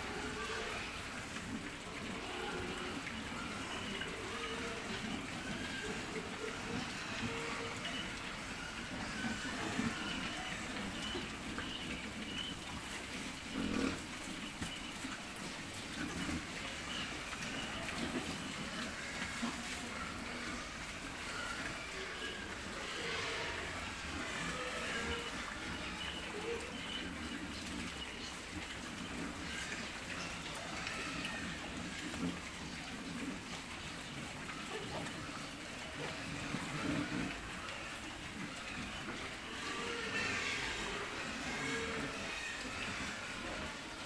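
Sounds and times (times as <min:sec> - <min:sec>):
pigs chewing and jostling: 0:00.0 - 0:44.0.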